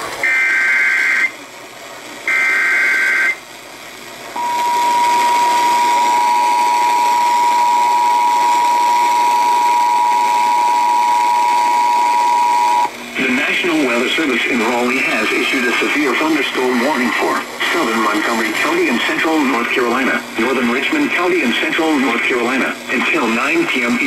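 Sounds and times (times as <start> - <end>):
two-tone alert signal: 4.4 - 12.9.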